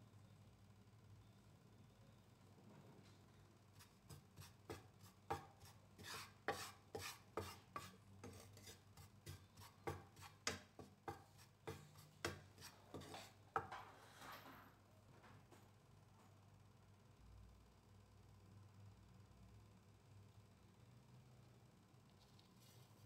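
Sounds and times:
spatula scraping a frying pan: 0:03.8 - 0:14.4.

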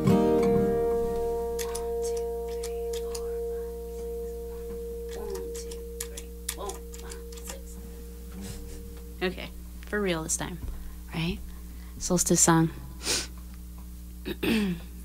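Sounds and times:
guitar chord with delay effect: 0:00.0 - 0:10.6
effect pedal clicks and taps: 0:01.6 - 0:03.3.

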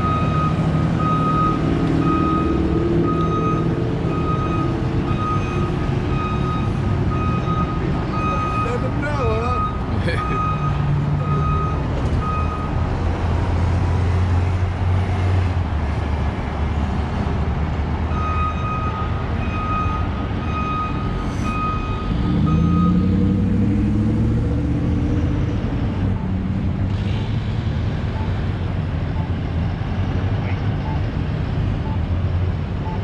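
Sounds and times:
reversing alarm beeping: 0:00.0 - 0:08.8, 0:09.4 - 0:12.8, 0:18.1 - 0:23.2
heavy engine running: 0:00.0 - 0:33.0.

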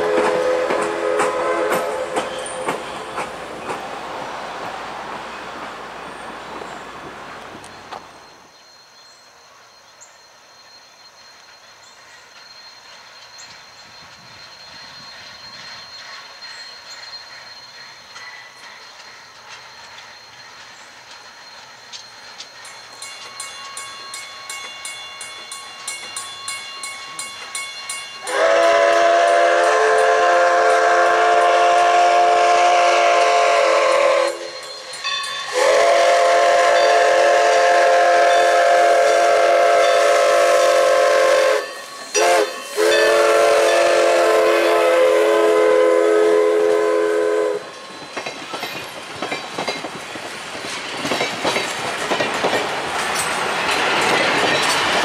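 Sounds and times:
steam whistle blasts: 0:00.0 - 0:03.2, 0:28.2 - 0:34.6, 0:35.5 - 0:47.8
train wheels clacking over rail joints: 0:00.0 - 0:04.1, 0:11.4 - 0:45.0, 0:47.6 - 0:55.0.

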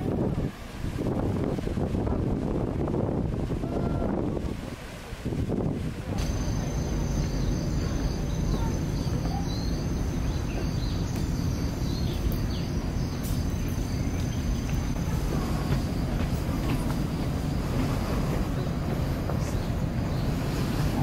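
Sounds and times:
engine low rumble: 0:00.0 - 0:21.0.

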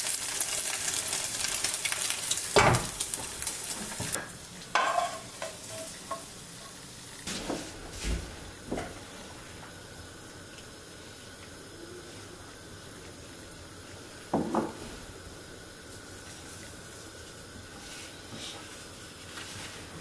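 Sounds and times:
fat sizzling in a frying pan: 0:00.0 - 0:20.0
wooden spoon knocking on pan: 0:14.3 - 0:14.8.

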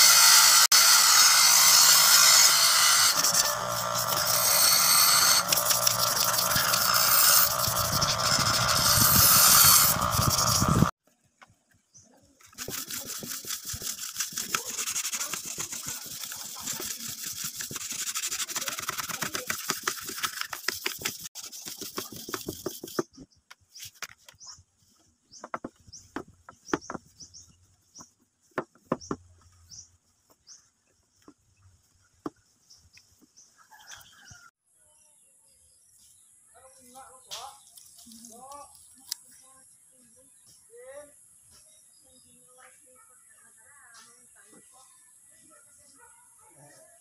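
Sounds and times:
stone scraping knife blade: 0:00.0 - 0:10.9.

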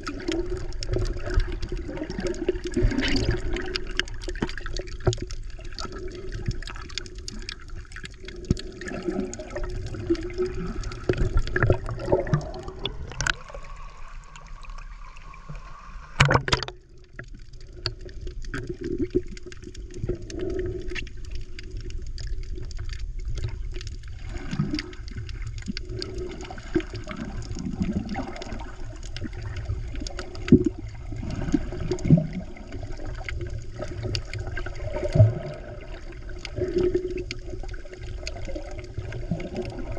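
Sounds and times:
gurgling bubbles: 0:00.0 - 0:39.9
underwater rumble of moving water: 0:00.0 - 0:39.9.

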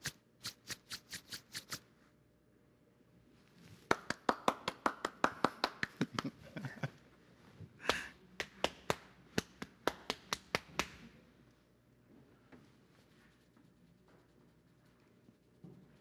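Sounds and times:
rhythmic hand claps: 0:03.9 - 0:06.4, 0:07.8 - 0:11.0
body-percussion slaps: 0:07.8 - 0:11.0.

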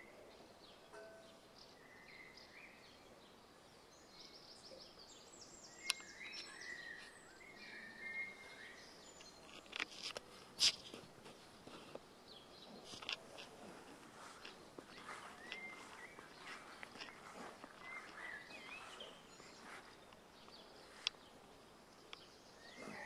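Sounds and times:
faint outdoor background noise: 0:00.0 - 0:23.0
small birds chirping: 0:00.0 - 0:23.0.

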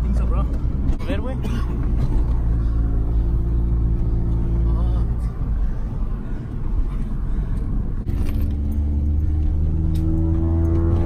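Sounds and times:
car engine running: 0:00.0 - 0:11.0
road rumble: 0:00.0 - 0:11.0.

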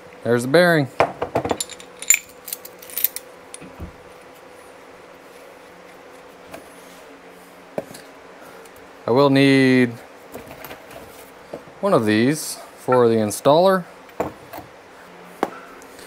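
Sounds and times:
fan hum: 0:00.0 - 0:16.0
small metal parts clinking: 0:01.5 - 0:03.2.

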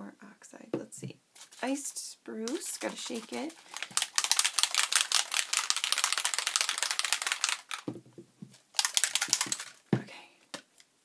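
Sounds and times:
spray bottle rattling: 0:02.5 - 0:09.8.

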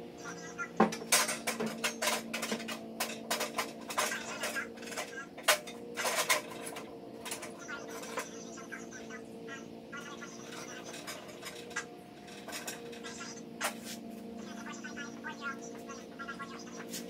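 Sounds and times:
steady low hum: 0:00.0 - 0:17.0
metal parts clinking and knocking: 0:00.8 - 0:08.4, 0:10.4 - 0:13.8.

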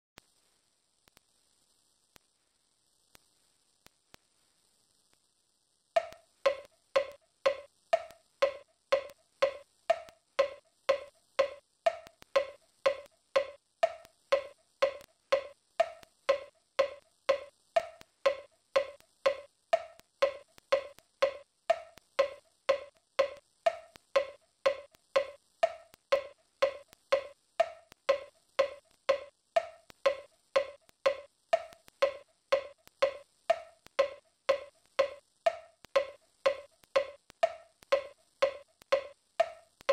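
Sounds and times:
wood block percussion knocking: 0:06.0 - 0:39.9.

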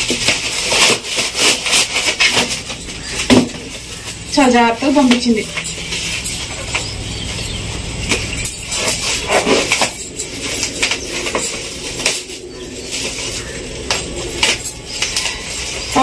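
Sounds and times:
bubble wrap rustling and crackling: 0:00.0 - 0:06.9.

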